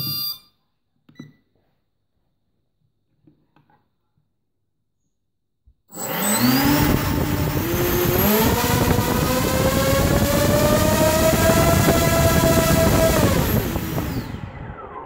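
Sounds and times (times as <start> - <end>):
quadcopter motors whining: 5.9 - 15.0.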